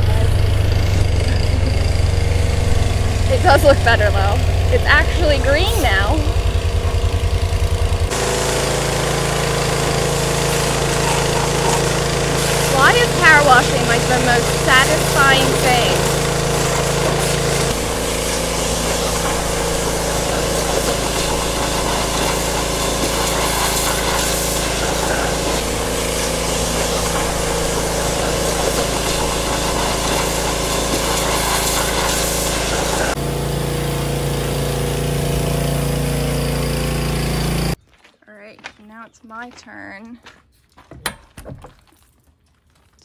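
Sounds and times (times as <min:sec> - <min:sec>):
high-pressure water jet hissing: 0:00.0 - 0:37.8
pressure washer motor humming: 0:00.0 - 0:37.8.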